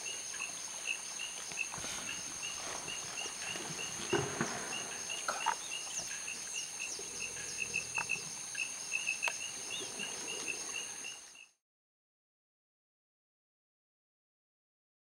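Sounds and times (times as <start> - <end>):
high insect drone: 0.0 - 11.6.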